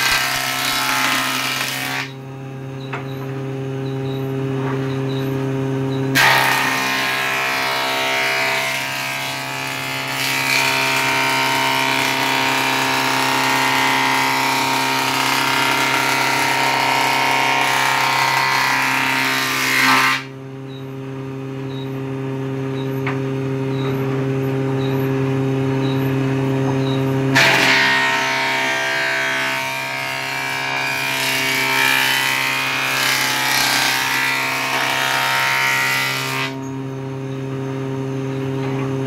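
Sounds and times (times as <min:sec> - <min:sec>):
planer cutting board: 0:00.0 - 0:02.2, 0:06.1 - 0:20.3, 0:26.7 - 0:36.6.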